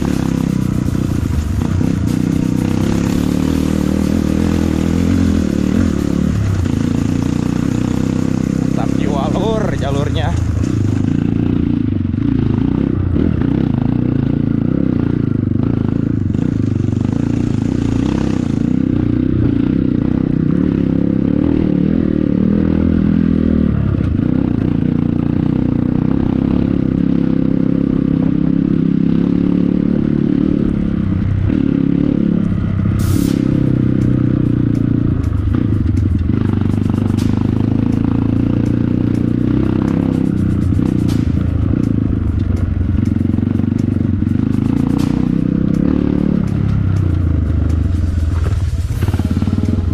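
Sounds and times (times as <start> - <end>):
motorcycle engine under load: 0.0 - 49.9
bike clattering over rough trail: 33.9 - 49.9.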